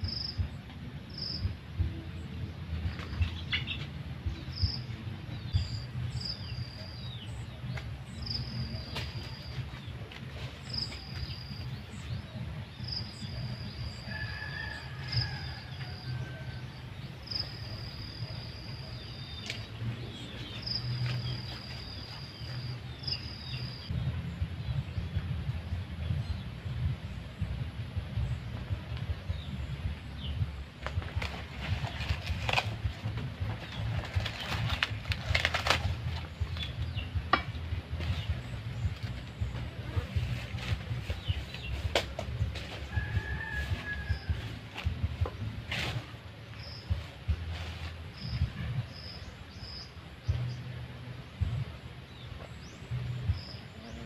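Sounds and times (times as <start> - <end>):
low steady hum: 0.0 - 54.0
steady low rumble: 0.0 - 54.0
bamboo rustling and cracking: 7.6 - 11.9, 19.3 - 22.8, 30.8 - 48.8.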